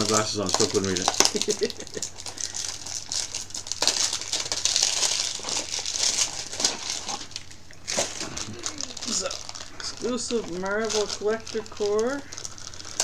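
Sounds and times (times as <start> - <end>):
packaging crinkling and rustling: 0.0 - 13.0.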